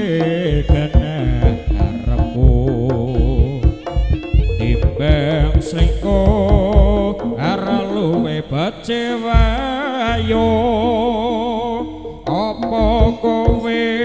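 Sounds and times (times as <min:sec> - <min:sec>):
hand drum strokes: 0:00.0 - 0:08.7
gamelan ensemble music: 0:00.0 - 0:14.0.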